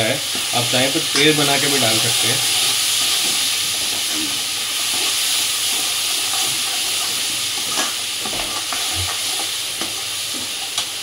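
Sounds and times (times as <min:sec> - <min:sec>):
vegetables sizzling in a pan: 0:00.0 - 0:11.0
metal spoon stirring: 0:01.4 - 0:07.9.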